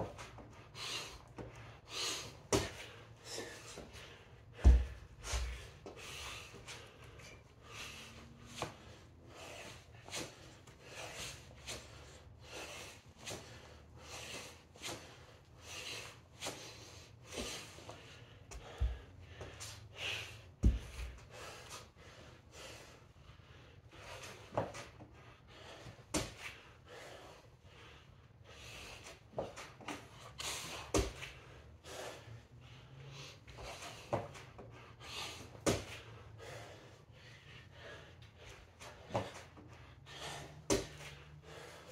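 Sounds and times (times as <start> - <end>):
man breathing hard: 0.0 - 41.9
kettlebell thud on rubber floor: 4.6 - 5.6.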